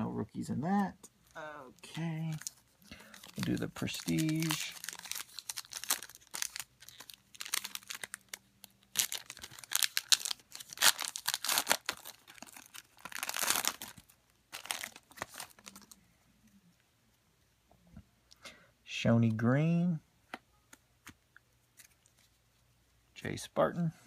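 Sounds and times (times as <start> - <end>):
cards rustling: 1.8 - 16.0, 20.7 - 22.6
foil wrapper crinkling and tearing: 2.2 - 16.0.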